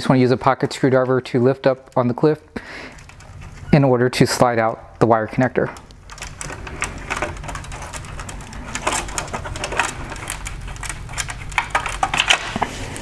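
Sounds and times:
low steady hum: 0.0s - 13.0s
plastic clicks and scrapes: 5.7s - 13.0s.

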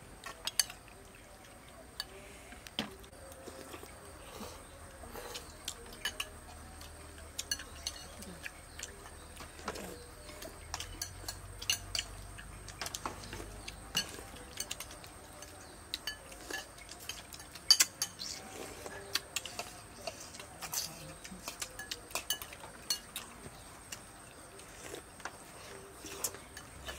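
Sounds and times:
utensils clinking on ceramic bowls: 5.3s - 24.1s.

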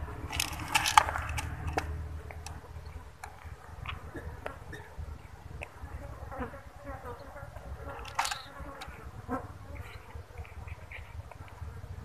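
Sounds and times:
low steady rumble: 0.0s - 6.8s.

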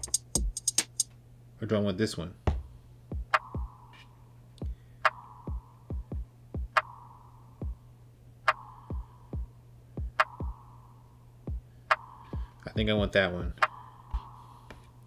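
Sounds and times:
deep kick drums: 2.4s - 3.8s, 4.6s - 6.9s, 7.6s - 7.8s, 8.9s - 10.6s, 11.4s - 11.7s, 12.3s - 13.7s.

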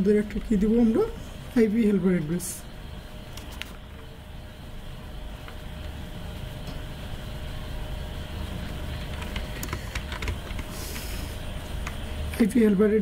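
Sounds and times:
keyboard keys clicking: 9.1s - 10.7s.

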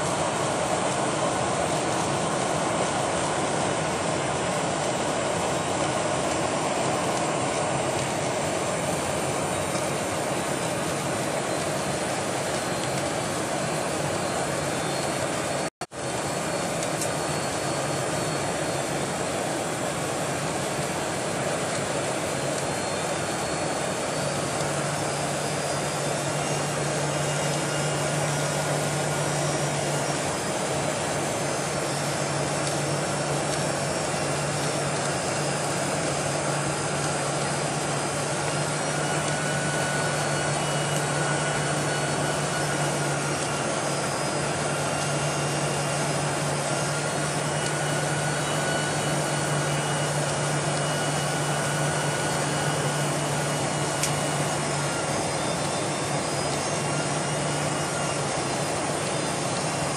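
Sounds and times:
airflow rushing in aircraft cabin: 0.0s - 59.9s
faint high whining tones: 0.0s - 59.9s
jet engines: 0.0s - 59.9s.

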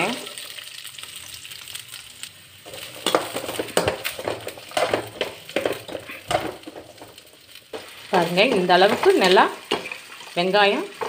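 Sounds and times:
metal spatula scraping pan: 2.7s - 7.1s.

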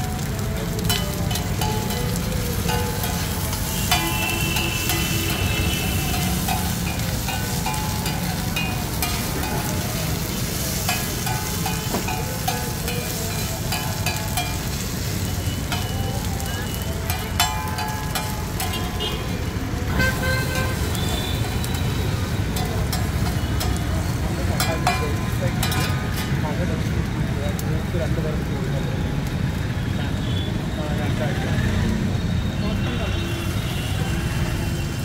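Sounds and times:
food sizzling on a griddle: 0.0s - 35.0s
metal spatula scraping griddle: 0.9s - 15.9s.

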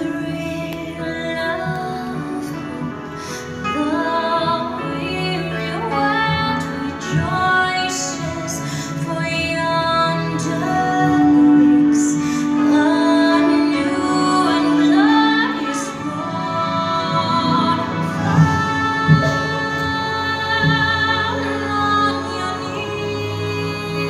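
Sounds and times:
instrumental accompaniment: 0.0s - 24.0s
person singing: 0.0s - 24.0s.

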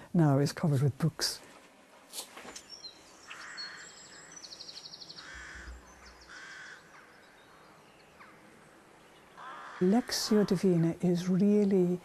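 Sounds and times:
harsh bird caws: 3.3s - 4.5s, 5.1s - 7.4s, 9.3s - 10.6s.

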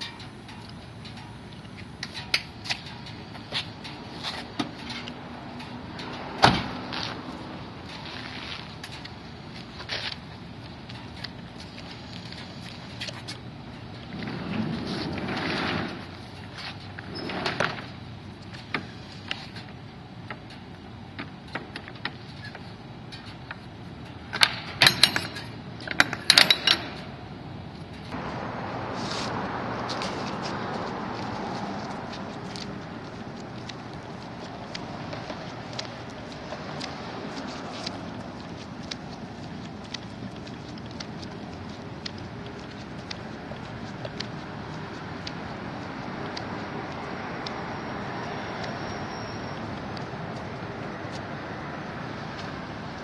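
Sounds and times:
sharp metallic clatter: 21.6s - 27.2s.

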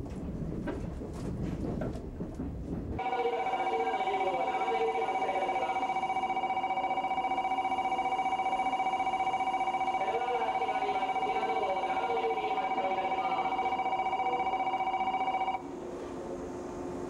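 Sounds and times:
train running rumble: 0.0s - 6.5s
electronic two-tone departure bell: 3.0s - 15.6s.

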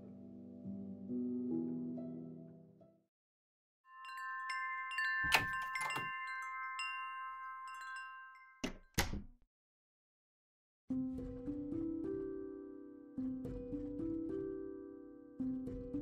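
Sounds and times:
metal chimes ringing: 3.9s - 8.7s.

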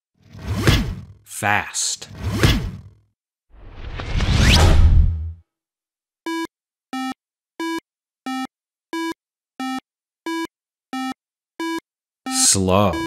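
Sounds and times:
chiptune beeps: 6.3s - 13.0s.

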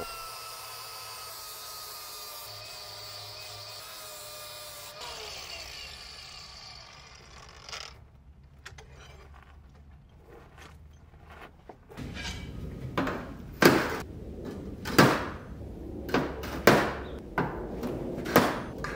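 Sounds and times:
angle grinder grinding steel: 0.0s - 8.0s.

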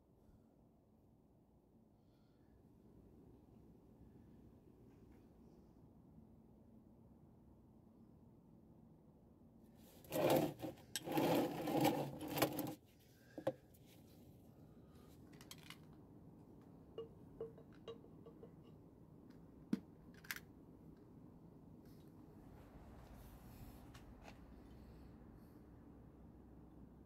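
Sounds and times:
rustling and handling noise: 9.7s - 18.6s.

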